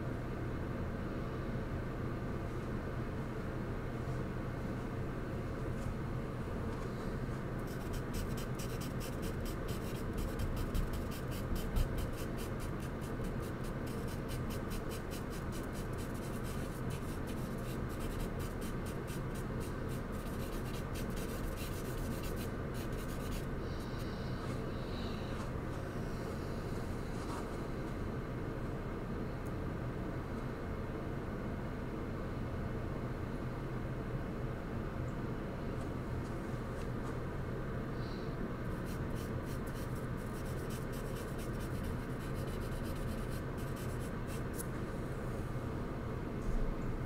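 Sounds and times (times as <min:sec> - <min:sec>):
low background hum: 0:00.0 - 0:47.0
charcoal scratching on paper: 0:07.6 - 0:23.5, 0:38.8 - 0:44.7.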